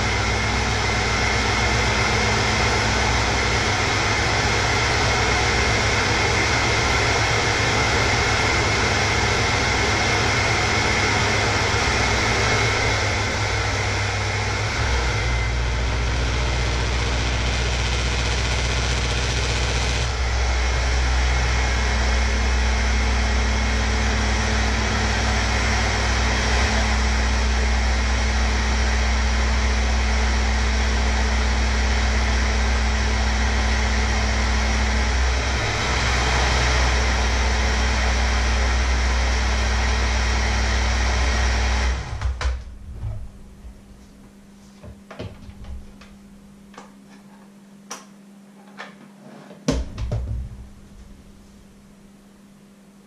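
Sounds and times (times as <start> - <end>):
electric hand mixer whirring: 0.0 - 27.6, 34.6 - 42.2.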